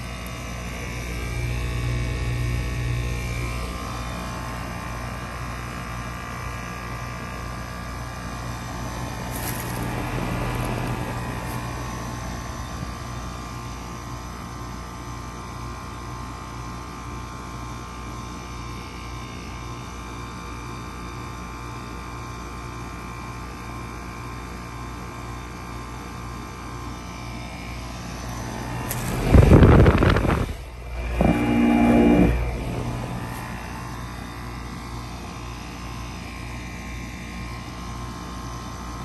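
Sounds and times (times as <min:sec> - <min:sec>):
heat pump humming: 0:00.0 - 0:15.6, 0:26.4 - 0:36.8
fan air blowing on microphone: 0:08.1 - 0:14.0, 0:27.3 - 0:34.5.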